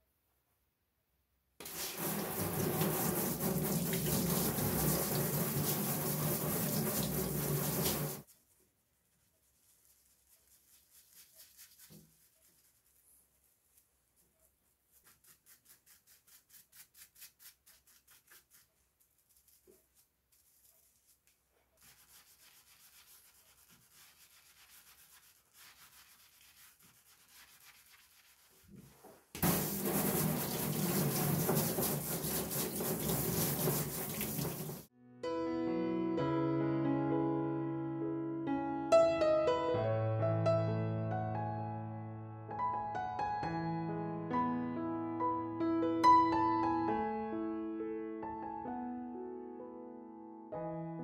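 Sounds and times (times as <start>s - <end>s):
water splashing into metal sink: 1.6s - 8.2s, 29.4s - 34.9s
water spraying onto knife blade: 1.6s - 8.3s, 29.4s - 34.9s.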